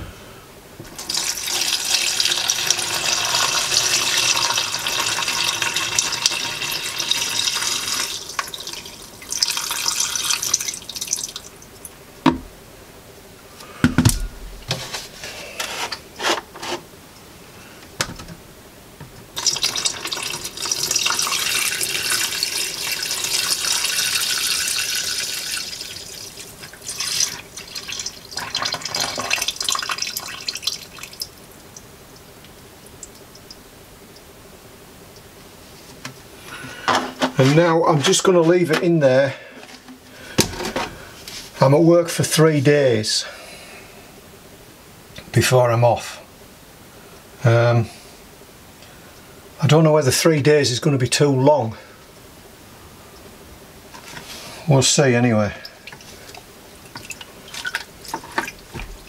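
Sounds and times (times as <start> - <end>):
liquid pouring into plastic bucket: 1.0 - 11.5, 19.4 - 31.3, 55.6 - 59.0
knocks: 12.2 - 12.5, 13.8 - 14.8.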